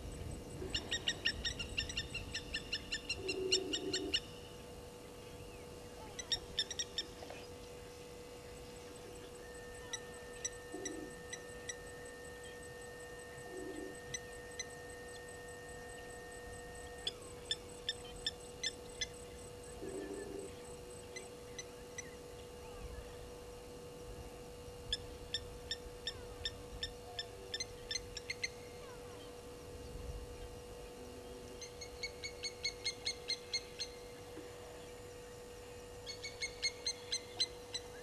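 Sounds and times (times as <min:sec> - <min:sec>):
low steady hum: 0:00.0 - 0:38.0
low hoots: 0:00.4 - 0:04.3, 0:08.9 - 0:22.2.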